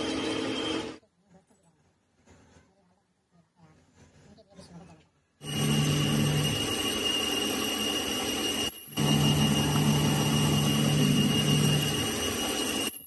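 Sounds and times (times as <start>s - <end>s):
metal lathe cutting: 0.0s - 1.0s, 5.4s - 13.0s.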